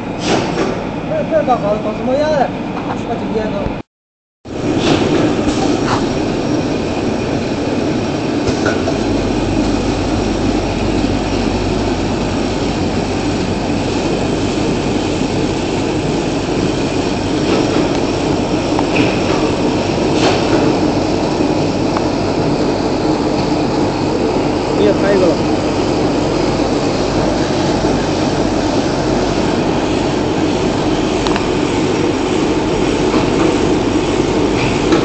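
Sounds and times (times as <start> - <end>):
low hum: 4.5 - 20.1.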